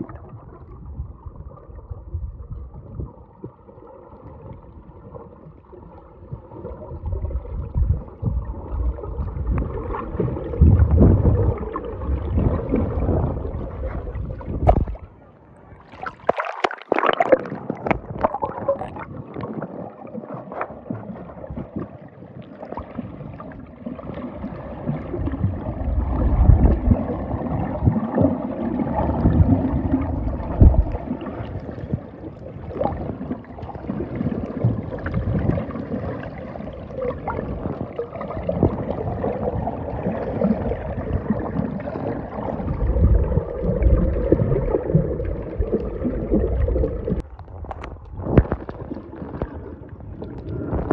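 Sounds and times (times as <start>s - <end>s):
water sloshing and gurgling: 0.0s - 50.9s
small splashes: 15.8s - 19.0s.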